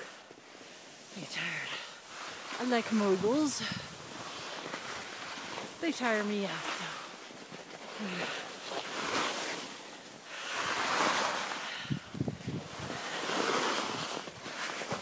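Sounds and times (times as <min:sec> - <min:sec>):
skis hissing over snow: 0:00.0 - 0:15.0
wind on microphone: 0:03.0 - 0:04.4, 0:10.6 - 0:15.0.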